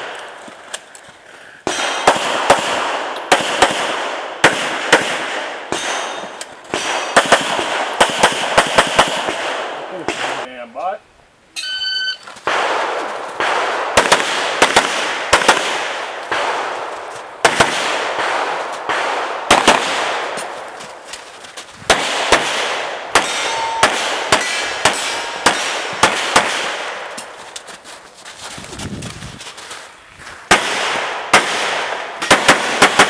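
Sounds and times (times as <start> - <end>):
pistol shots echoing: 1.6 - 10.5, 12.4 - 20.7, 21.9 - 27.2, 30.5 - 33.0
shot timer beep: 11.6 - 12.2, 23.4 - 24.0.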